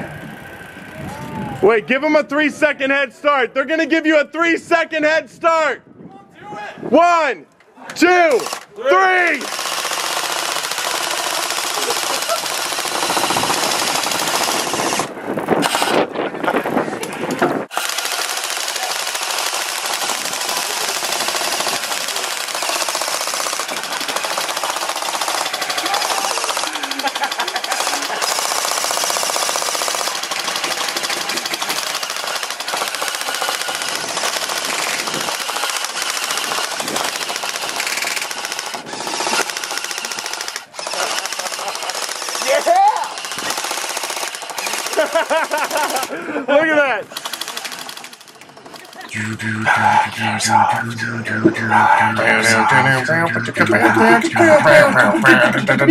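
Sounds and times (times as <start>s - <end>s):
airsoft guns firing full-auto: 9.3s - 16.0s, 17.7s - 46.2s, 47.1s - 49.1s.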